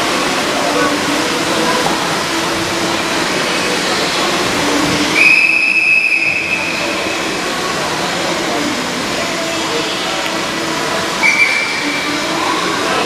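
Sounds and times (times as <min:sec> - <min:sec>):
indoor pool hall background noise: 0:00.0 - 0:13.0
referee's whistle blast: 0:05.2 - 0:06.9, 0:11.2 - 0:11.8.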